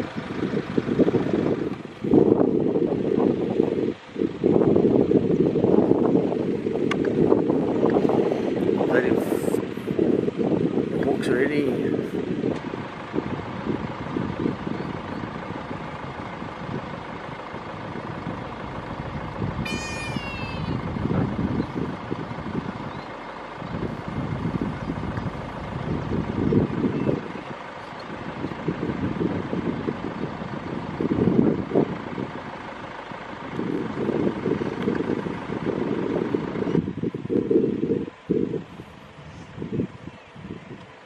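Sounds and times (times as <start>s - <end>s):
low rumbling noise: 0.0s - 40.9s
high-pitched call: 19.6s - 20.9s.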